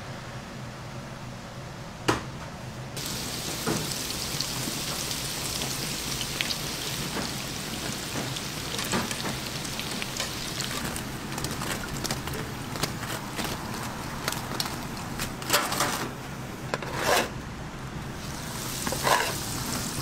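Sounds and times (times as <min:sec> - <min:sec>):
hot oil sizzling and popping: 0:03.0 - 0:15.4, 0:18.1 - 0:20.0.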